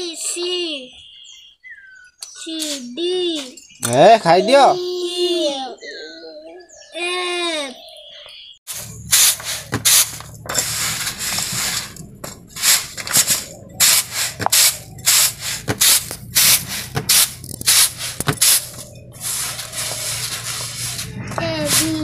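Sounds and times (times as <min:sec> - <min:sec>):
broom sweeping concrete floor: 0:08.7 - 0:22.0.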